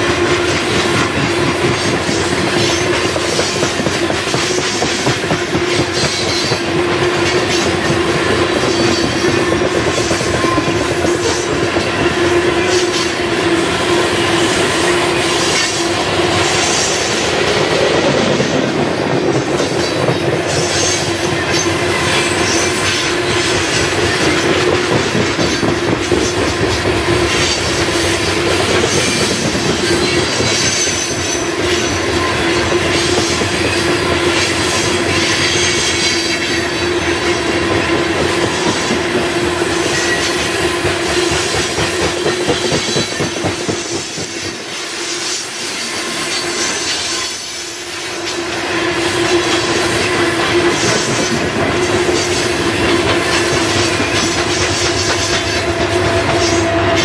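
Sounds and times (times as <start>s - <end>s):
train wheels rumbling on rail: 0.0s - 57.0s
ringing tone from wheels: 34.8s - 50.3s
wheels clacking over rail joints: 49.2s - 57.0s.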